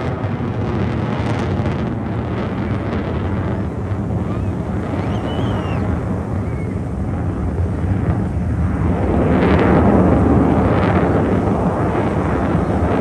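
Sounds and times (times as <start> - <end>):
aircraft passing overhead: 1.3 - 13.0.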